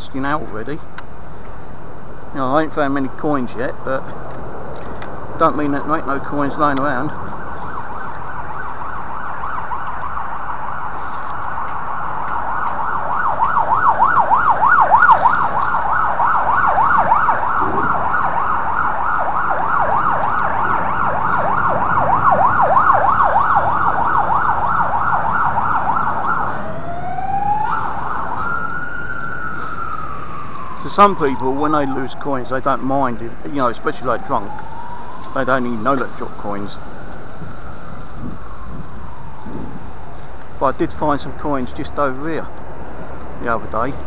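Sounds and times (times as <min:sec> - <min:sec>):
emergency siren: 0:05.6 - 0:40.5.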